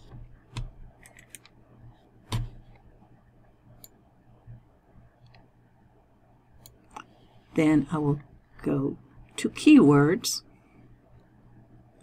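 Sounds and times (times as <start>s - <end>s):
faint room hum: 0.0s - 12.0s
computer mouse clicks: 0.1s - 1.6s, 3.8s - 4.0s, 5.2s - 5.5s, 6.6s - 7.1s.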